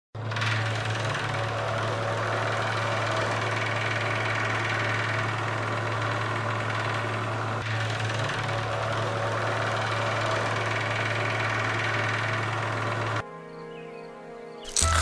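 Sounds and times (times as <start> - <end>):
electric fan running: 0.2 - 13.3.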